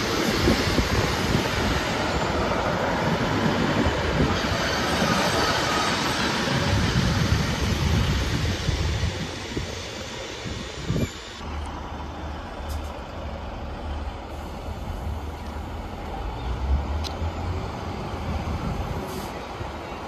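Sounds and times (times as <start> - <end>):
train diesel engines rumbling: 0.0 - 20.0.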